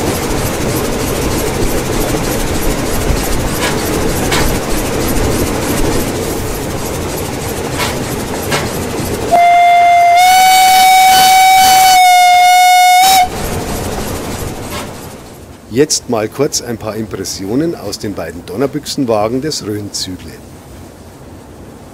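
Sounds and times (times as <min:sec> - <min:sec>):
wheels clicking over rail joints: 0:00.0 - 0:11.1, 0:13.0 - 0:15.7
steam locomotive running: 0:00.0 - 0:20.3
steam whistle: 0:09.3 - 0:13.4.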